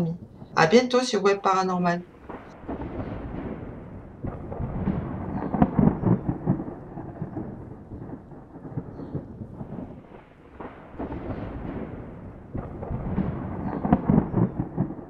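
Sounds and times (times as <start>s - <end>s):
rolling thunder: 0.0s - 15.0s
steady rain: 0.0s - 15.0s.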